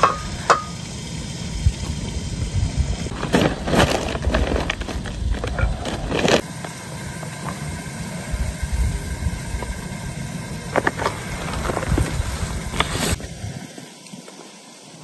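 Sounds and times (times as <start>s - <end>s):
wind rumble on microphone: 1.5s - 6.4s, 8.2s - 13.7s.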